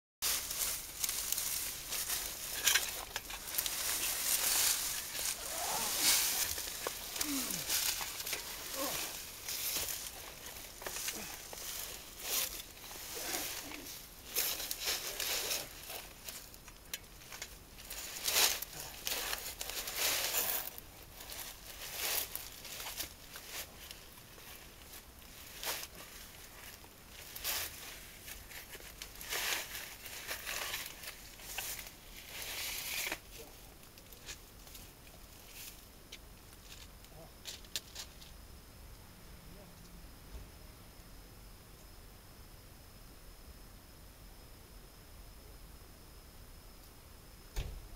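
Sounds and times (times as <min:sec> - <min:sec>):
rustling and scraping: 0:00.2 - 0:38.4
hiss-like noise: 0:00.2 - 0:47.9.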